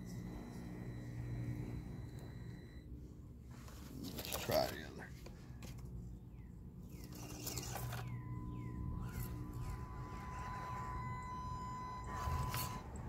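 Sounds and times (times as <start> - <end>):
small electric motor whining: 0.0 - 2.9, 6.9 - 13.0
birds chirping: 6.0 - 13.0.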